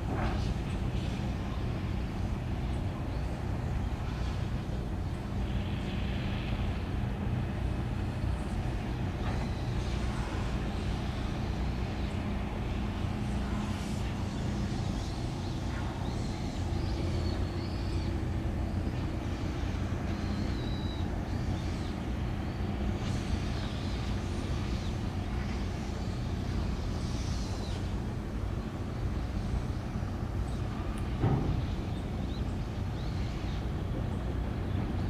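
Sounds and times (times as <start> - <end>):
low engine rumble: 0.0 - 35.0.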